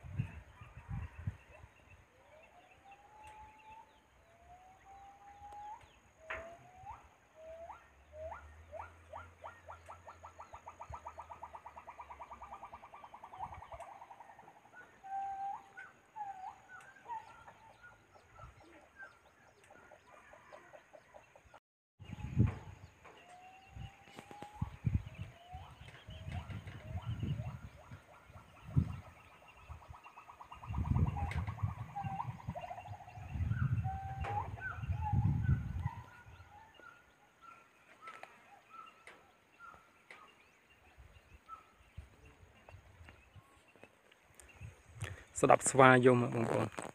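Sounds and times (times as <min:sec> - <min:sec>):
monkeys whooping: 0:25.5 - 0:37.0.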